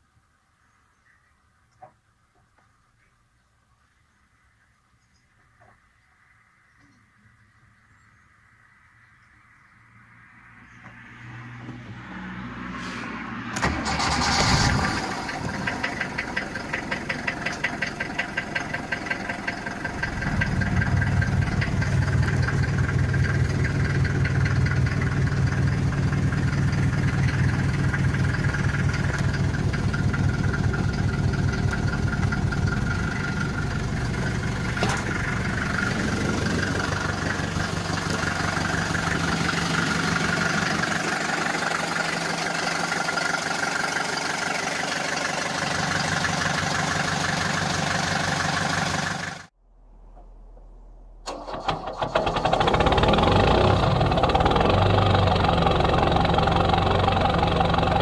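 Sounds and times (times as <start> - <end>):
diesel engine clattering at idle: 13.6 - 49.5, 51.3 - 58.0
starter motor cranking: 51.3 - 57.9.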